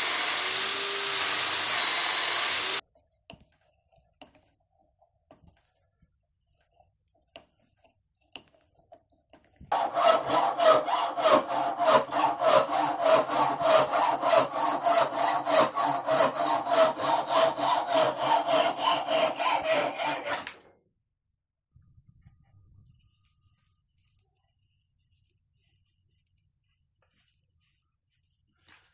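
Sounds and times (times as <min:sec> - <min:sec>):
hacksaw cutting through metal screw: 0:00.0 - 0:02.8, 0:09.7 - 0:20.6.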